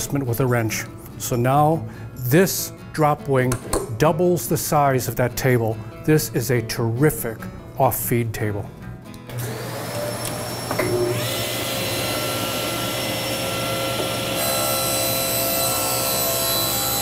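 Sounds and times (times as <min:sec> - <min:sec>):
table saw motor whine: 0:09.3 - 0:17.0
saw cutting board: 0:09.4 - 0:17.0.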